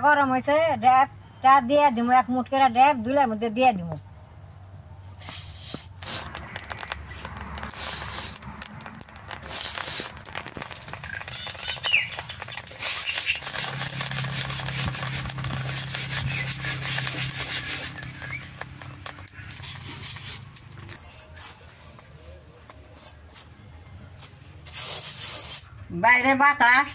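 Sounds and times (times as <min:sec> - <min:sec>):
seeds crackling and popping: 0:05.2 - 0:21.5
sand stirred with sticks: 0:05.2 - 0:22.0, 0:24.6 - 0:25.7.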